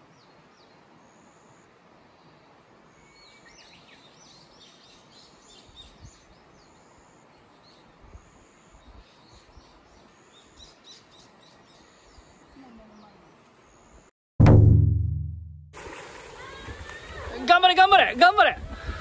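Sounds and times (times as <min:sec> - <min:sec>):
faint outdoor hiss: 0:00.0 - 0:14.1, 0:15.8 - 0:19.0
small birds chirping: 0:00.1 - 0:14.1
soft low thumps: 0:14.4 - 0:15.7.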